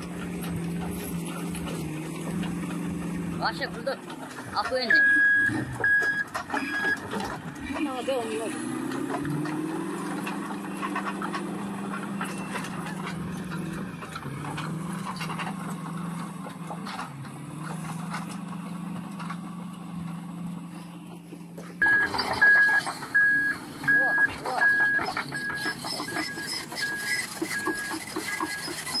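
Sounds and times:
bulldozer diesel engine running: 0:00.0 - 0:29.0
reversing alarm beeping: 0:04.8 - 0:07.1, 0:21.8 - 0:29.0.

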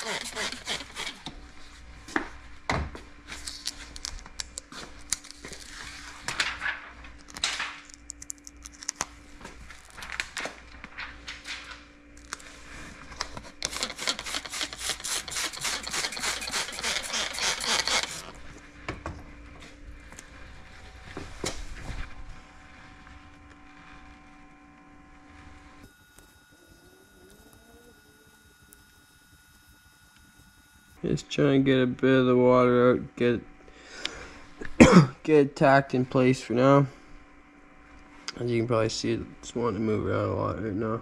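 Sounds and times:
hands rubbing plastic film: 0:13.3 - 0:18.3.

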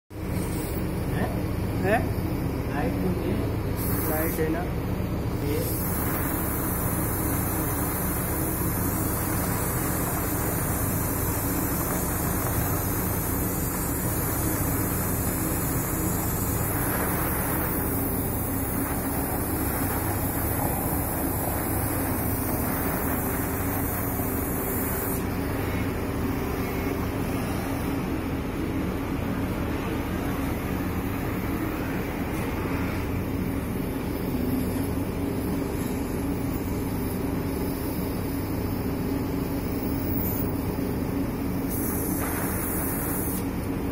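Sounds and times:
cutting torch hissing: 0:00.2 - 0:28.4, 0:29.4 - 0:43.9.

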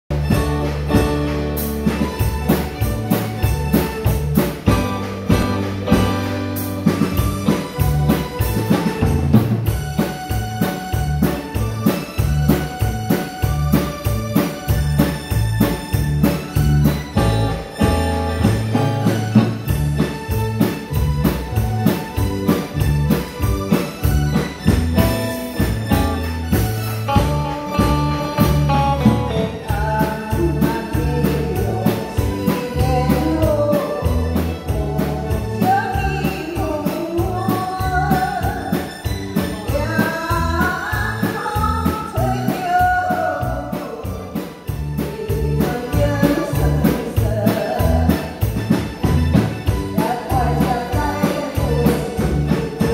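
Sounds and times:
live band playing: 0:00.0 - 0:52.9
woman singing amplified: 0:27.3 - 0:52.9.

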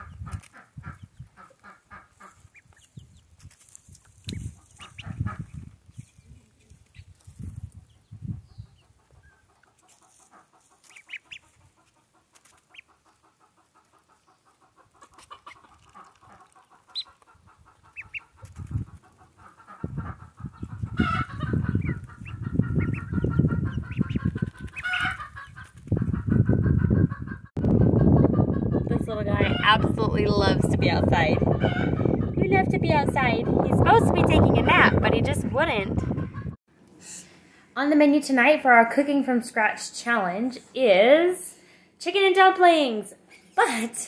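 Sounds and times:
hen clucking softly: 0:00.0 - 0:03.2, 0:04.2 - 0:07.2, 0:08.3 - 0:29.9
ducklings peeping: 0:00.0 - 0:36.6.

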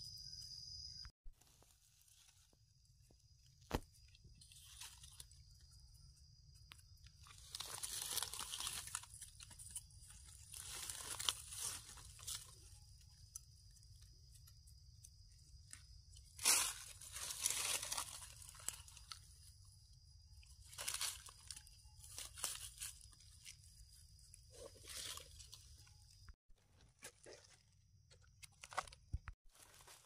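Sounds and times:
dry leaves crunching: 0:01.5 - 0:02.7, 0:03.7 - 0:05.6, 0:07.2 - 0:13.3, 0:16.2 - 0:19.7, 0:20.4 - 0:26.0, 0:29.5 - 0:30.0.

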